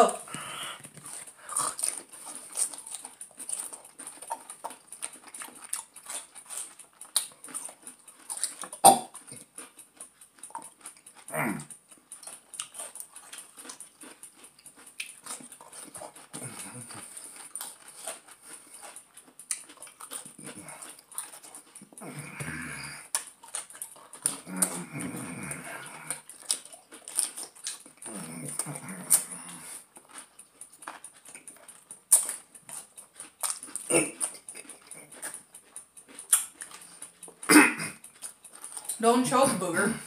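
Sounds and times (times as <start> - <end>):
people crunching pickles: 0.0 - 40.0
mouth clicks: 8.3 - 9.8.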